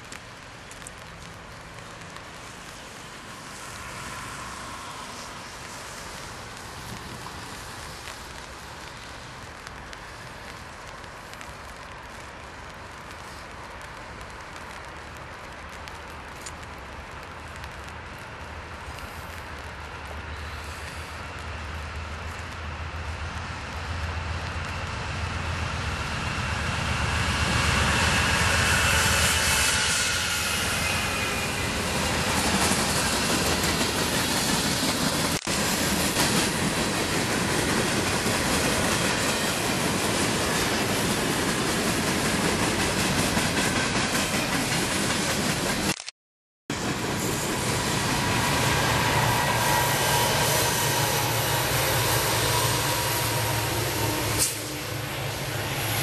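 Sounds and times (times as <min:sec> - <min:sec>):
locomotive engine hum: 0:00.0 - 0:45.9, 0:46.7 - 0:56.0
train wheels clattering on rails: 0:26.1 - 0:46.0.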